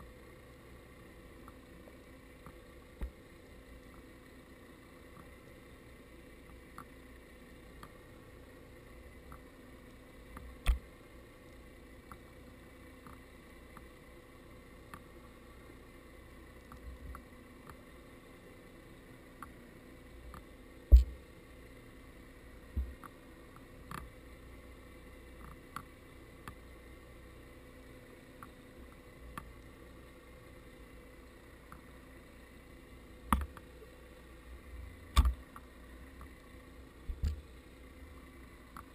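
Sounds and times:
faint underwater hum: 0:00.0 - 0:38.9
small scattered clicks: 0:06.4 - 0:07.0, 0:12.0 - 0:12.3, 0:13.0 - 0:13.9, 0:22.8 - 0:24.1, 0:25.4 - 0:26.6.

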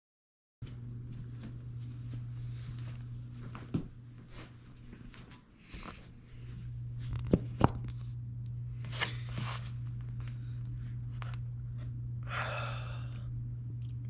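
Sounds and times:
soft rustles of movement: 0:00.6 - 0:07.1
steady low hum: 0:00.6 - 0:14.0.

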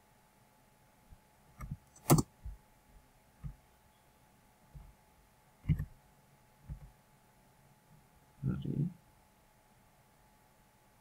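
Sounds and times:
computer mouse and keyboard clicks: 0:01.6 - 0:02.3, 0:05.6 - 0:05.9.

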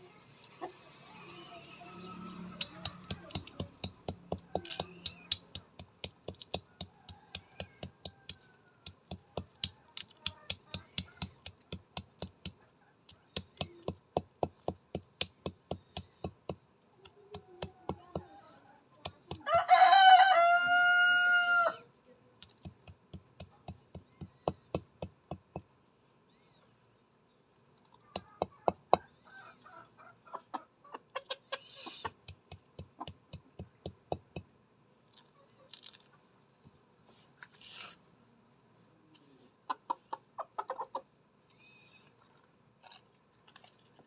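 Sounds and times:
chickens pecking grain on dirt: 0:00.3 - 0:12.0
rooster crowing: 0:19.4 - 0:21.8.

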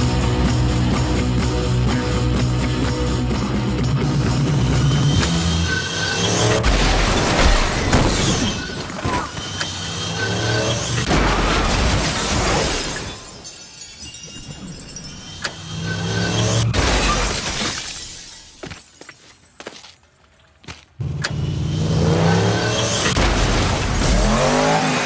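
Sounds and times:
glass smashing and shattering: 0:11.1 - 0:19.1.

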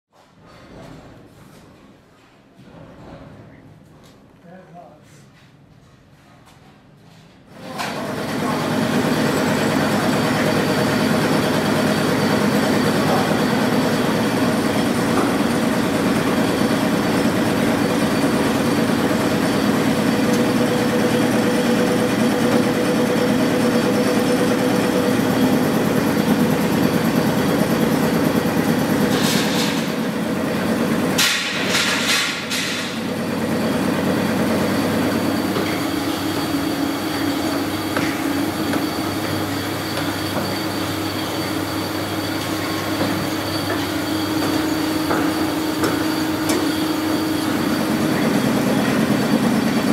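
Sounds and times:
low machine hum: 0:07.5 - 0:49.9.

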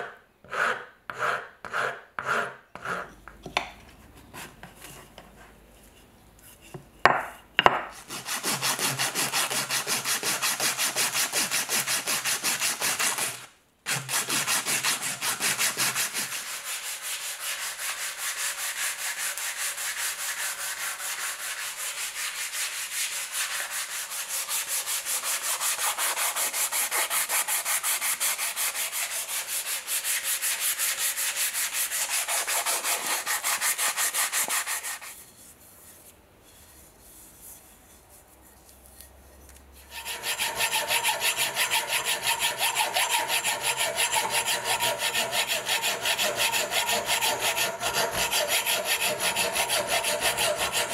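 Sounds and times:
sandpaper rubbing on wood: 0:08.0 - 0:35.4, 0:39.9 - 0:50.9.

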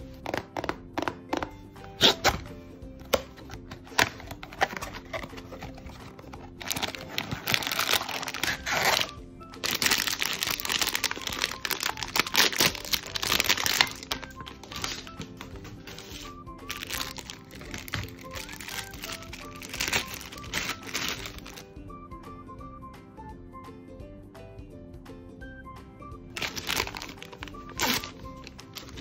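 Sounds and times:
soft background music: 0:00.0 - 0:29.0
plastic foil bag crinkling: 0:04.4 - 0:21.6, 0:26.4 - 0:29.0.

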